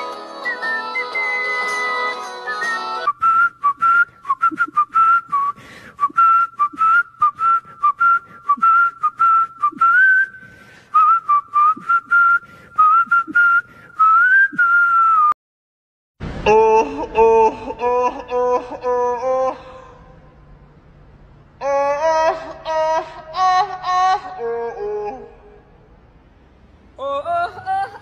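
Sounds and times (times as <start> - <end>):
music: 0.0 - 3.1
person whistling a tune: 0.0 - 15.4.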